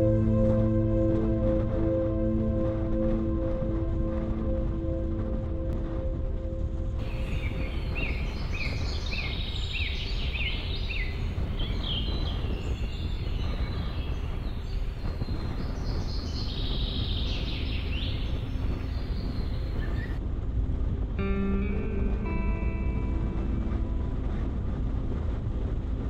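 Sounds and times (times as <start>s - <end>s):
bird chirping: 7.0s - 20.2s.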